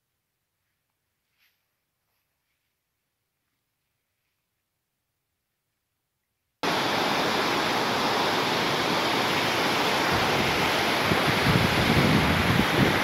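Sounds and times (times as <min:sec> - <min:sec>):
waterfall rushing over rock: 0:06.6 - 0:13.0.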